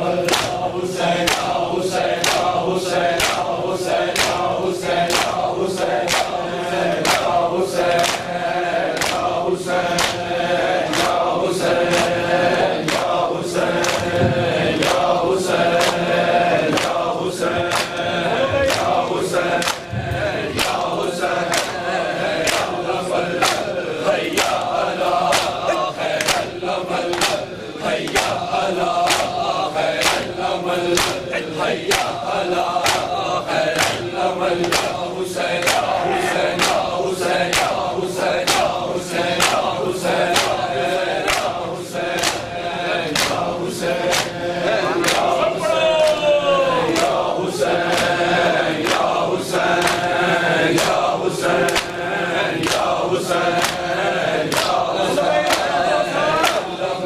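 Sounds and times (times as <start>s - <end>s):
men chanting together: 0.0s - 57.0s
hands slapping chests: 0.2s - 45.4s, 46.0s - 52.0s, 52.6s - 55.8s, 56.4s - 56.8s.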